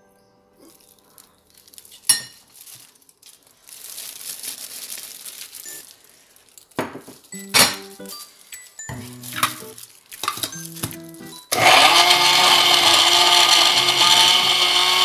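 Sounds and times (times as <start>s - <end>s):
plastic glove rustling: 0.6s - 11.6s.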